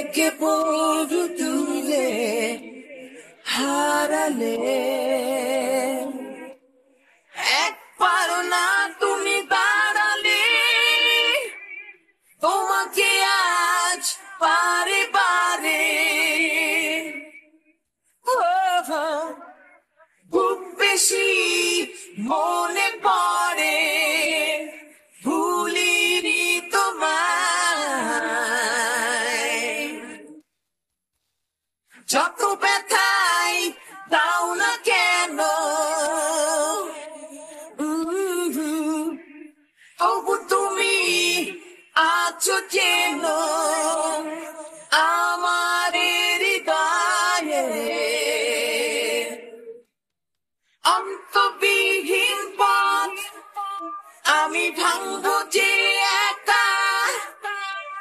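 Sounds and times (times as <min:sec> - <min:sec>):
singer breathing in: 0:39.7 - 0:40.0.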